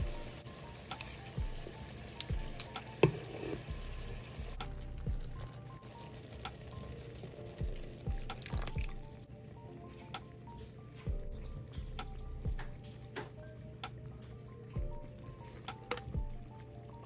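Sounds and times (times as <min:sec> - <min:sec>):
background music: 0:00.0 - 0:17.0
food simmering: 0:00.0 - 0:17.0
water pouring into pan: 0:01.0 - 0:09.3.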